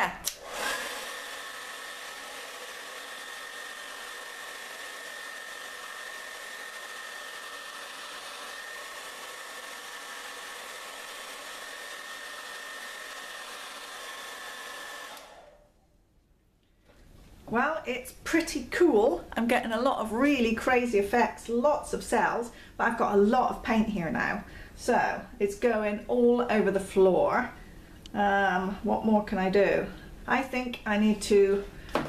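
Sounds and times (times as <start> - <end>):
hair dryer blowing with high whine: 0.2 - 15.7.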